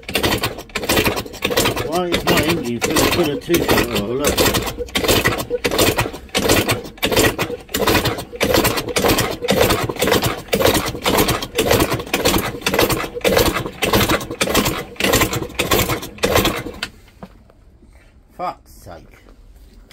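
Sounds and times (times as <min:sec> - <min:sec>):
two-stroke moped engine pulsing: 0:00.0 - 0:16.9.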